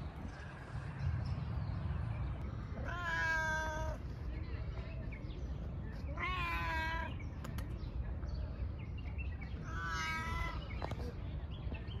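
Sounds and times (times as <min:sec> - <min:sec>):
steady low rumble: 0:00.0 - 0:06.2
cat meowing: 0:02.8 - 0:04.0, 0:06.1 - 0:07.1, 0:09.7 - 0:10.6.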